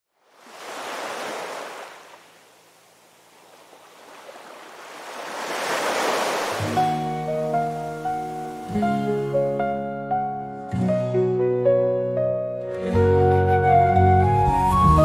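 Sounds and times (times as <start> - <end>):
waves breaking and washing in: 0.1 - 10.0.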